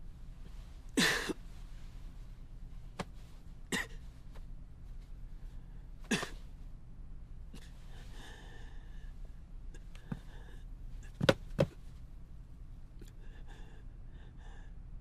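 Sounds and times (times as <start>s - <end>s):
man coughing: 1.0s - 1.4s, 3.7s - 4.0s, 6.1s - 6.4s
man breathing hard: 7.8s - 9.2s, 13.0s - 14.9s.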